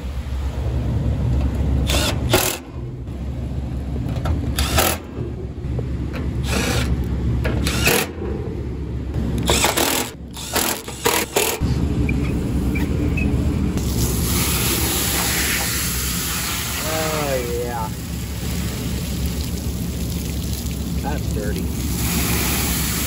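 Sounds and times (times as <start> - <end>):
steady low rumble: 0.0 - 23.0
impact driver driving screws: 7.6 - 8.2, 9.4 - 11.6.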